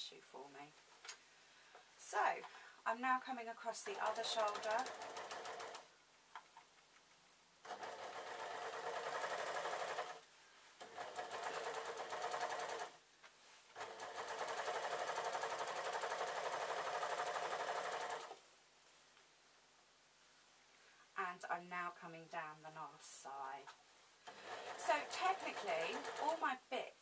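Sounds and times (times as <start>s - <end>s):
overlocker stitching: 3.8s - 5.9s, 7.6s - 10.2s, 10.8s - 13.0s, 13.7s - 18.4s, 24.2s - 26.6s.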